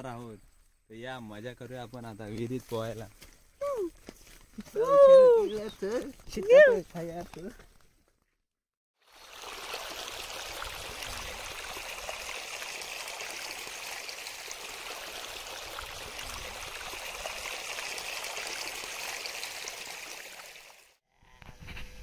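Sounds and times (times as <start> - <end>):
stream splashing over rocks: 9.0 - 21.0.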